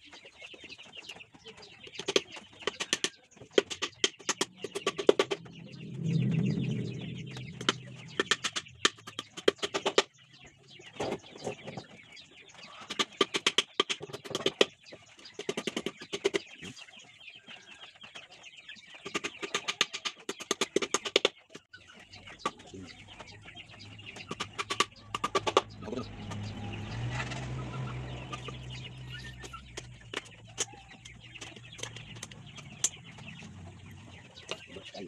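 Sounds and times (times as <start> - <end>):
chickens clucking: 0.0 - 6.6, 7.2 - 35.0
low rumble: 4.2 - 9.8, 22.9 - 34.4.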